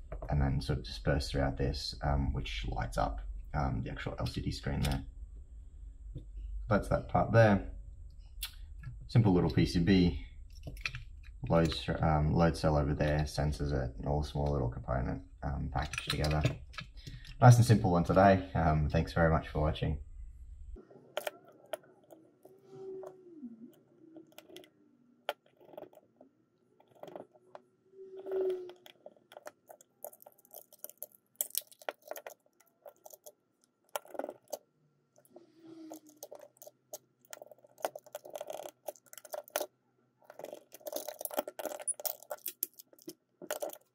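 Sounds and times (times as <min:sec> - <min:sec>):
plastic squeaks: 0:21.0 - 0:24.7, 0:25.3 - 0:31.1, 0:35.2 - 0:43.9.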